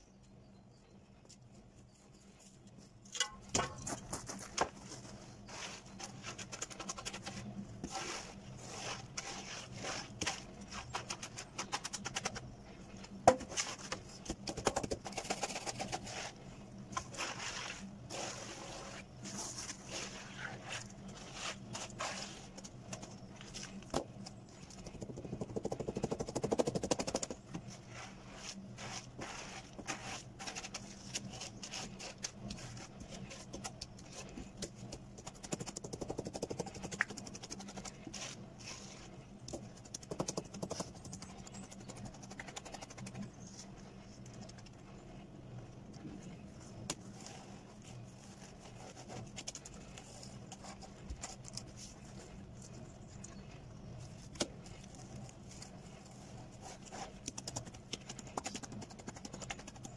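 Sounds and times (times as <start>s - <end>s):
board scraping wet concrete: 7.8s - 11.1s, 17.0s - 22.6s.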